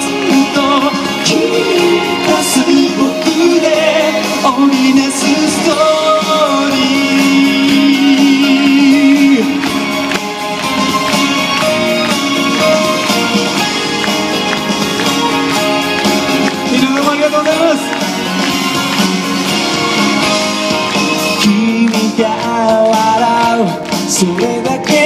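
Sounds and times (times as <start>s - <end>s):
man singing: 0.0s - 10.0s, 16.5s - 18.1s, 21.3s - 25.0s
hand claps: 6.3s - 25.0s.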